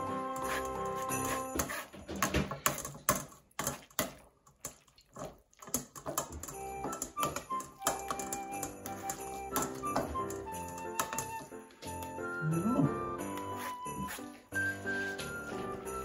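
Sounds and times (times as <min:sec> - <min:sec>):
background music: 0:00.0 - 0:01.8, 0:06.5 - 0:16.0.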